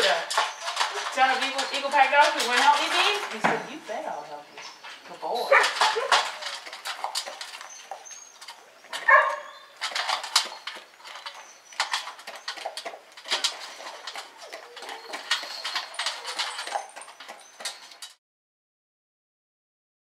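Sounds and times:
clicks and rustles: 0:00.0 - 0:18.2
dog whine: 0:10.4 - 0:18.0.

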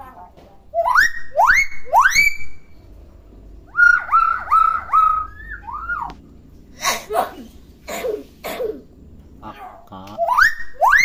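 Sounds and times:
bird whistling: 0:00.7 - 0:02.8, 0:03.7 - 0:06.2, 0:10.2 - 0:11.0
harsh bird calls: 0:00.7 - 0:11.0.

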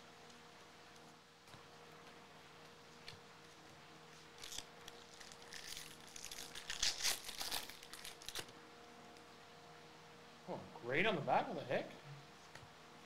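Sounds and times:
foil wrapper tearing and crinkling: 0:04.3 - 0:08.5.

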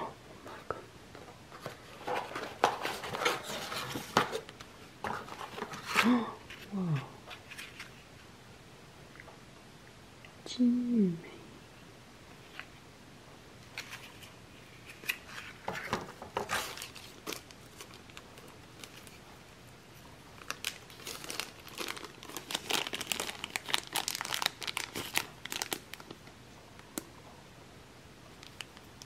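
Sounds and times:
plastic packaging crinkling: 0:14.9 - 0:19.3, 0:20.4 - 0:26.3.

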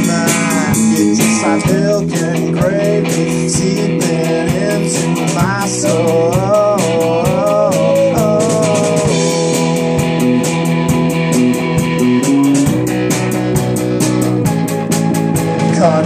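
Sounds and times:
man singing: 0:00.0 - 0:10.2, 0:15.6 - 0:16.0
drums beating: 0:00.0 - 0:16.0
electric guitar: 0:00.0 - 0:16.0.

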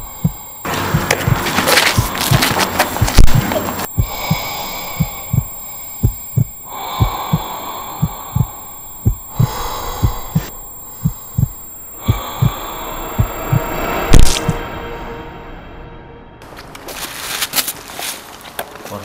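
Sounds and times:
heartbeat double thump: 0:00.0 - 0:14.7
low drone and hiss: 0:03.4 - 0:18.0
loud hiss: 0:03.9 - 0:15.2.

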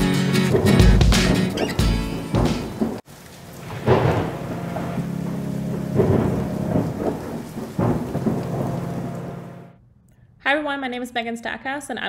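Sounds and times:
thunder rumbling: 0:00.0 - 0:09.8
steady rain: 0:00.2 - 0:09.7.

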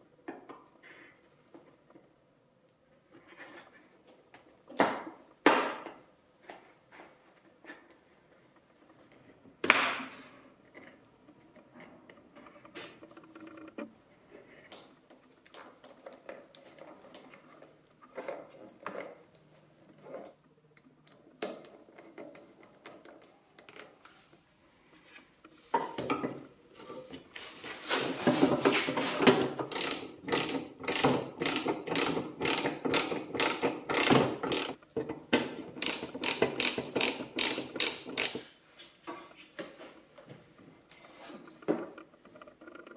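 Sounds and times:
ratchet wrench clicking: 0:29.7 - 0:34.8, 0:35.8 - 0:38.4.

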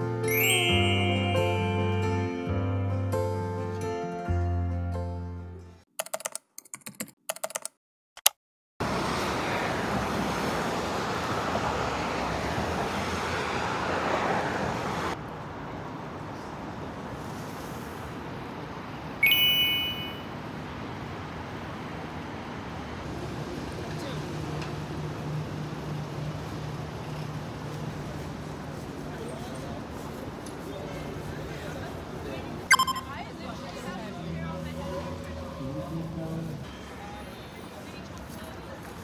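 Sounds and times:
city street traffic: 0:00.0 - 0:04.4, 0:08.8 - 0:39.0
background music: 0:00.0 - 0:05.8
short bright ringing tone: 0:00.3 - 0:02.6, 0:19.2 - 0:20.3, 0:32.7 - 0:33.2.

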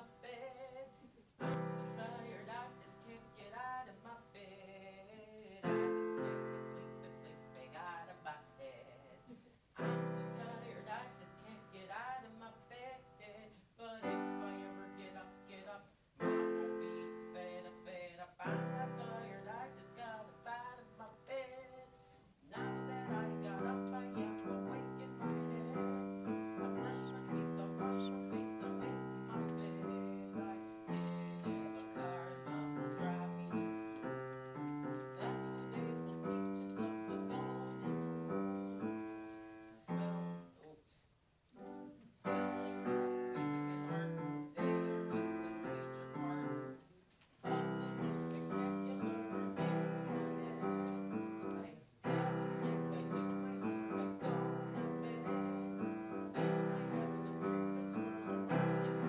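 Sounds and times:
grand piano playing: 0:01.4 - 0:03.9, 0:09.8 - 0:13.2, 0:14.0 - 0:15.6, 0:16.2 - 0:21.0, 0:22.6 - 0:40.6, 0:41.6 - 0:46.8, 0:47.4 - 0:59.0.

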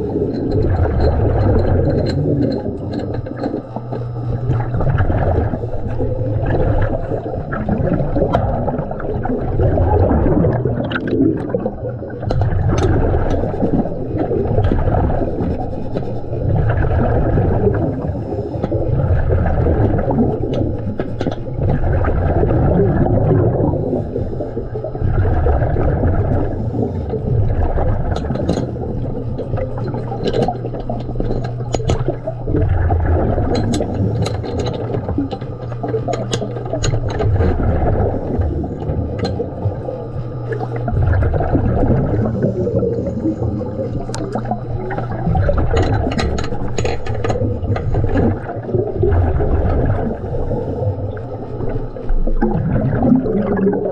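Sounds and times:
bubbles gurgling: 0:00.0 - 0:53.9
low hum: 0:00.0 - 0:53.9
diver breathing underwater: 0:03.6 - 0:20.9, 0:21.9 - 0:53.9.

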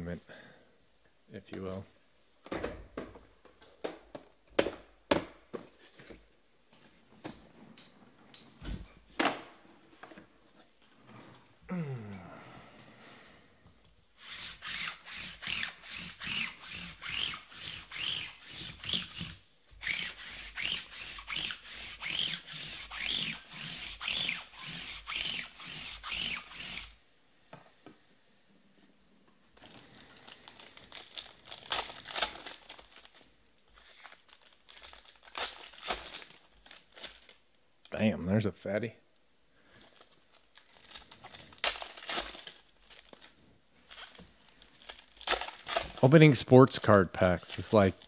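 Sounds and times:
rubbing strokes: 0:14.2 - 0:27.0
foil wrapper crinkling and tearing: 0:29.6 - 0:37.4, 0:39.7 - 0:46.2.

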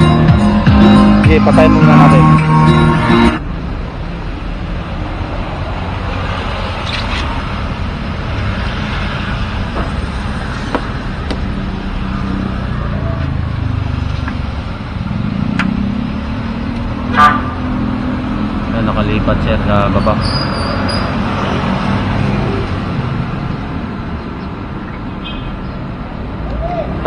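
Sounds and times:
road traffic rumble: 0:00.0 - 0:27.0.

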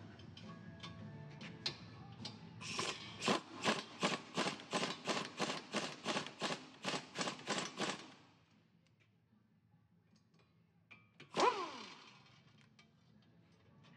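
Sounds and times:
ratchet wrench clicking: 0:11.4 - 0:12.4.

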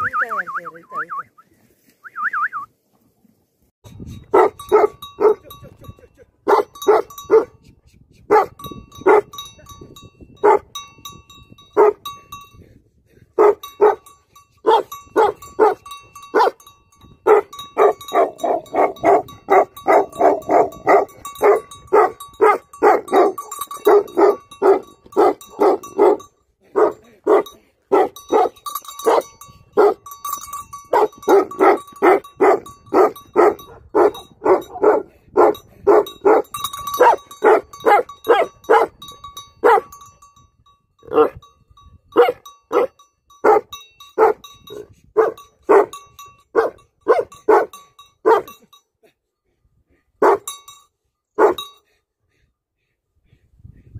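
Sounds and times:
dog barking: 0:04.3 - 0:05.4, 0:06.5 - 0:07.5, 0:08.3 - 0:09.3, 0:10.4 - 0:10.7, 0:11.8 - 0:12.0, 0:13.4 - 0:14.0, 0:14.7 - 0:15.8, 0:16.4 - 0:16.6, 0:17.2 - 0:30.0, 0:30.9 - 0:39.0, 0:39.6 - 0:39.9, 0:41.1 - 0:41.4, 0:42.2 - 0:46.0, 0:46.6 - 0:48.6, 0:50.2 - 0:50.5, 0:51.4 - 0:51.6.

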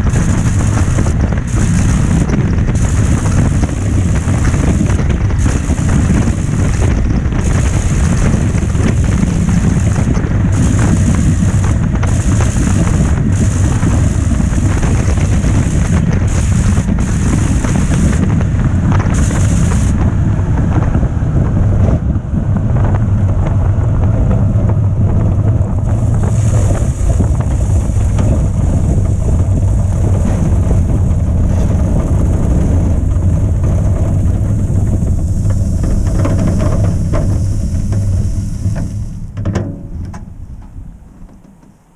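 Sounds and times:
wind rush: 0:00.0 - 0:39.4
airplane engine running: 0:00.0 - 0:41.8.

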